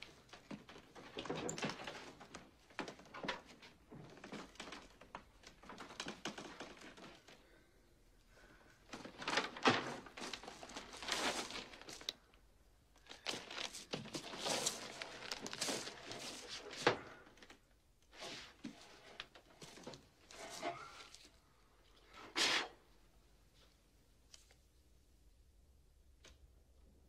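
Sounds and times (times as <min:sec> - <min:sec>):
paper and cardboard rustling: 0:08.9 - 0:12.2, 0:13.0 - 0:21.4.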